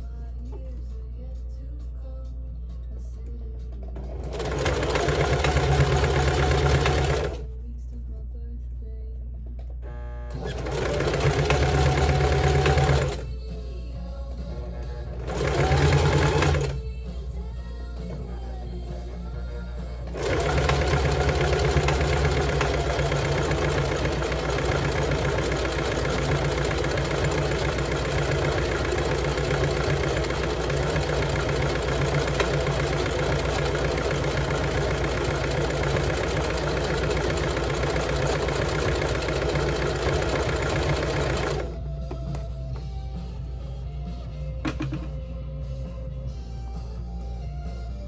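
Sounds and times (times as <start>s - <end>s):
sewing machine running: 3.9s - 7.5s, 10.3s - 13.4s, 14.5s - 16.9s, 19.1s - 41.8s.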